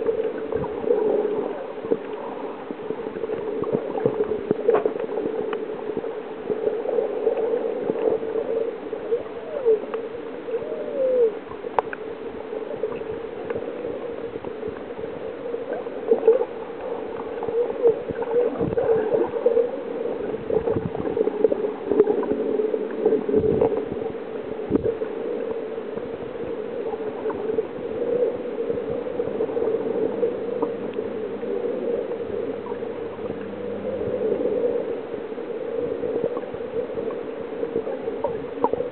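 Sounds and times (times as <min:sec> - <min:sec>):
underwater watery rush: 0:00.0 - 0:38.9
faint clicks: 0:09.6 - 0:10.1, 0:11.1 - 0:12.1.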